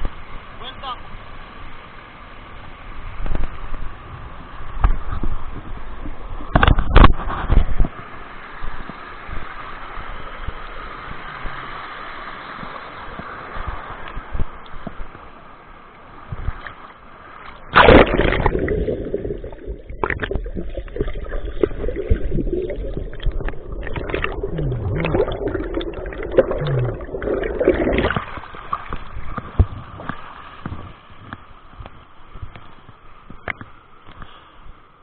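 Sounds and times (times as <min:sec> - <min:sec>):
rushing river water: 0:07.2 - 0:35.0
loud splash: 0:17.7 - 0:29.0
muffled underwater bubbling rumble: 0:17.7 - 0:31.1.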